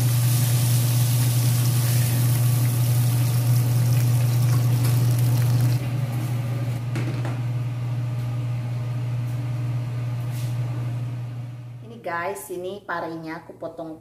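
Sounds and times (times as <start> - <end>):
oil sizzling in frying pan: 0.0 - 6.0.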